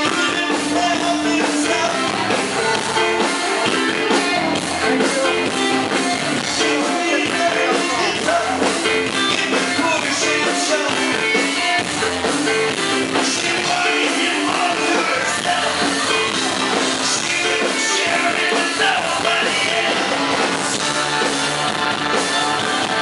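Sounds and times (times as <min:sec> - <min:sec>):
man singing: 0:00.0 - 0:04.2, 0:04.8 - 0:11.8, 0:12.6 - 0:21.0
drum kit: 0:00.0 - 0:23.0
electric guitar: 0:00.0 - 0:23.0.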